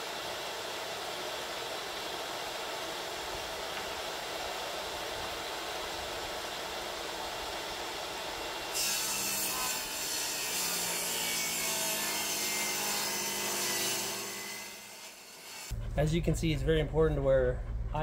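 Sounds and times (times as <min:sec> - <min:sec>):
table saw cutting wood: 0:08.6 - 0:15.7.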